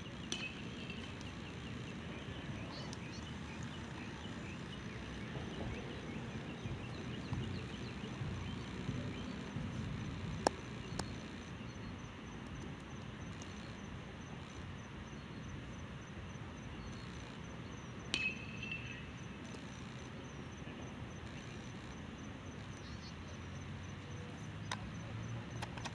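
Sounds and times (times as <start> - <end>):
distant jet low rumble: 0.0 - 19.4.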